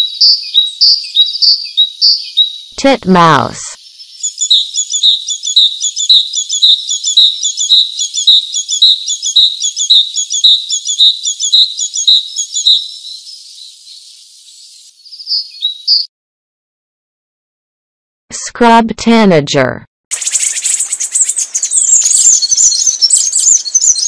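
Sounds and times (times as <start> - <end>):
bird call: 4.1 - 16.1, 20.1 - 24.0.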